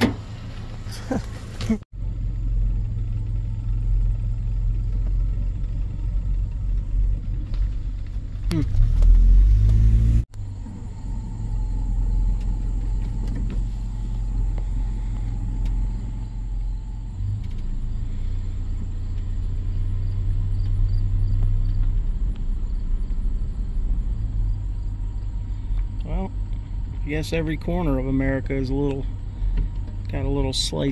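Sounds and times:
truck engine and road rumble: 0:00.0 - 0:30.9.

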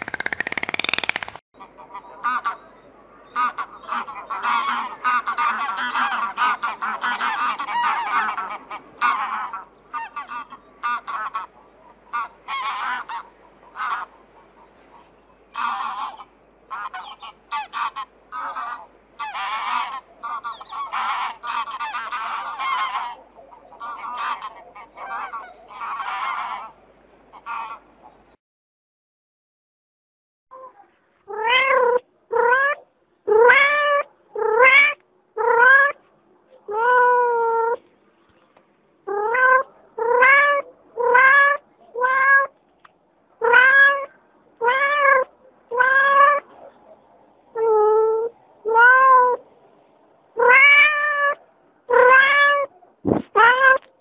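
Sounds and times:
geese honking: 0:01.6 - 0:28.2.

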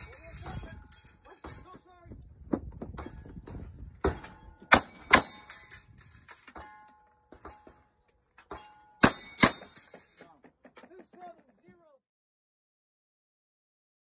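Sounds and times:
steel target clanging: 0:00.0 - 0:01.8, 0:04.0 - 0:10.4
gunshots: 0:09.0 - 0:09.8.

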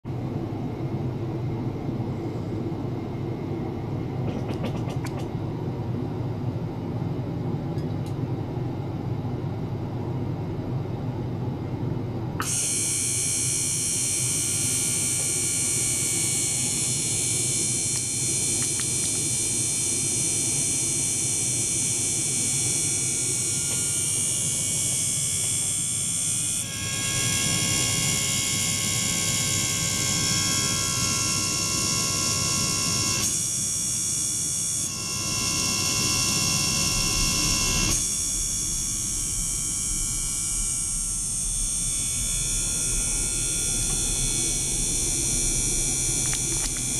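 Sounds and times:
high-pitched whining tones: 0:34.9 - 0:46.9.

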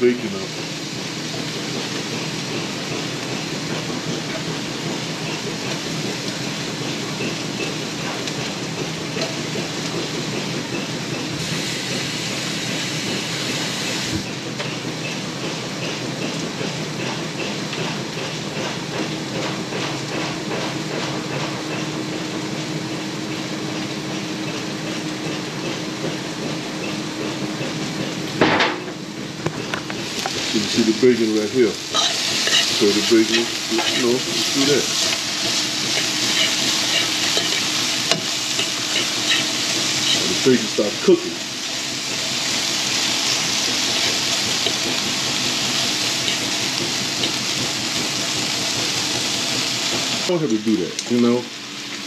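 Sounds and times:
bacon sizzling in a pan: 0:00.0 - 0:14.4, 0:29.5 - 0:52.0.

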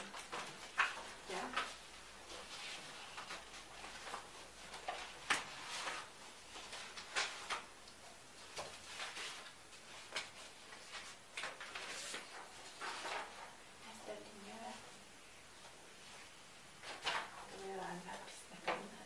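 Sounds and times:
paper pages rustling: 0:00.0 - 0:14.0, 0:15.6 - 0:18.9.

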